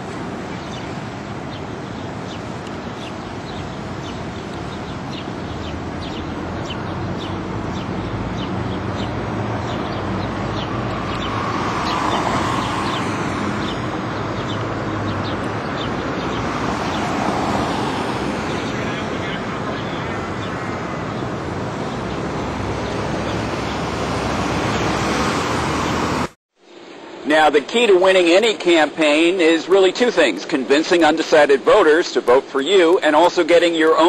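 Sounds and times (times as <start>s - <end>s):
birds chirping: 0.0s - 26.1s, 27.6s - 34.0s
steady noise wash: 0.0s - 34.0s
engine passing: 3.0s - 26.4s.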